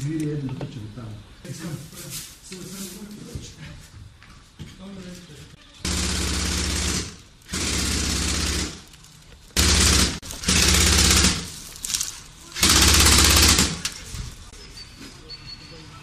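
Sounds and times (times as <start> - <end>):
gun firing automatic bursts: 5.9 - 8.9, 9.6 - 11.6, 12.6 - 13.8.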